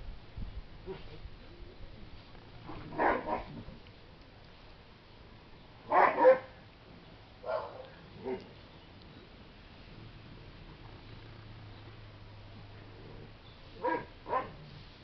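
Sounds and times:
dog barking: 2.9 - 3.5, 5.9 - 6.5, 7.4 - 8.4, 13.8 - 14.6.

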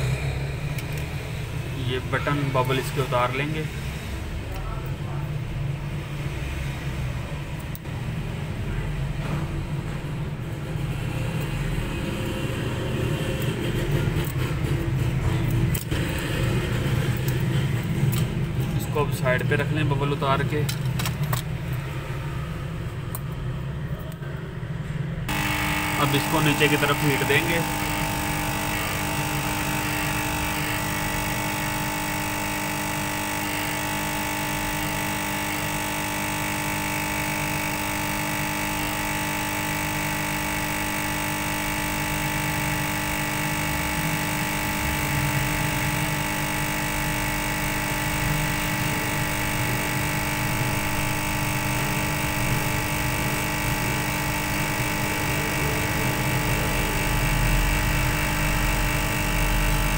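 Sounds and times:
hot air gun blowing: 25.3 - 59.9.

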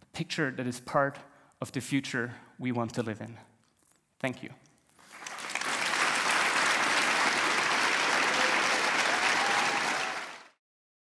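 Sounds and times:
audience applauding: 5.0 - 10.6.

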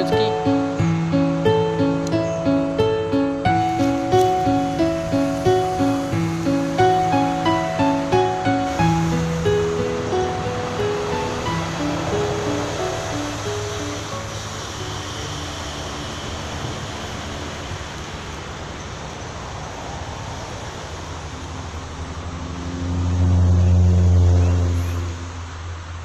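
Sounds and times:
road traffic noise: 0.0 - 26.0
vehicle engine passing by: 3.4 - 26.0.

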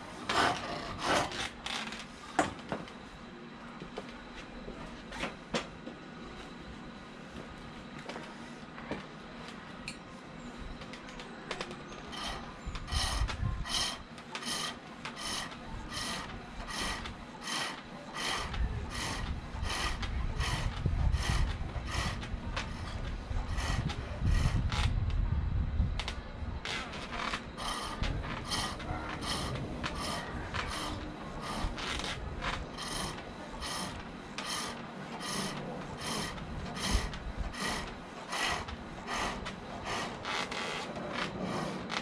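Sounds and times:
treadle thudding: 10.9 - 25.2, 26.0 - 42.0
lathe tool cutting wood: 12.1 - 24.6, 27.0 - 40.8.

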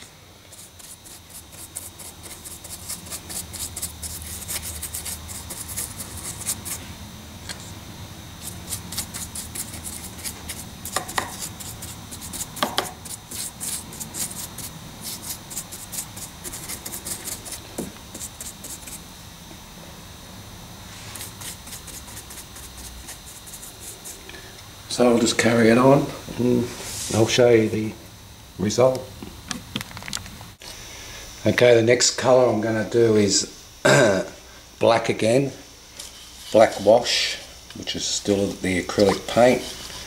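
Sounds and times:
paintbrush scrubbing and dabbing: 0.0 - 6.8, 8.4 - 19.0, 20.9 - 24.2.

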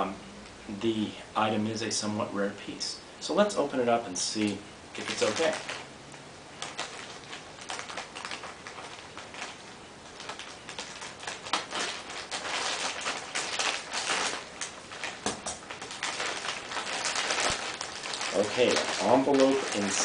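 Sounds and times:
mailer bag tearing and crinkling: 5.0 - 5.9, 6.6 - 20.0.

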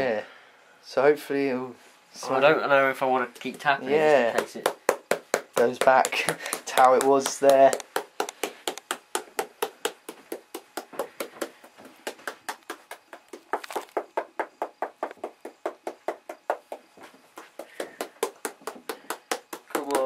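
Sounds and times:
hand tapping tablet back: 4.3 - 20.0.

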